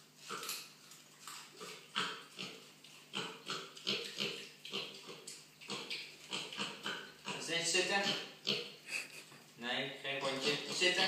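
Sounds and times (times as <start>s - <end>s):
pig grunting: 1.5s - 9.2s, 10.2s - 11.0s.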